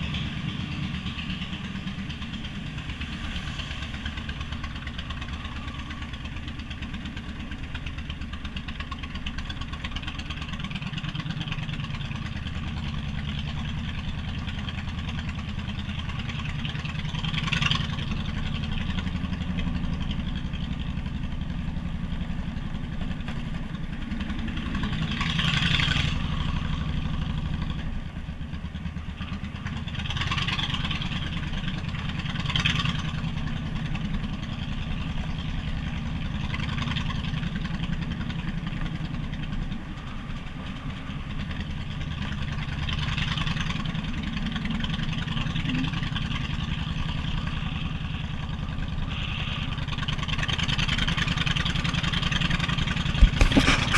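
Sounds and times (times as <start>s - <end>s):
motorcycle engine rumbling: 0.0s - 53.9s
rushing noise: 1.6s - 6.3s.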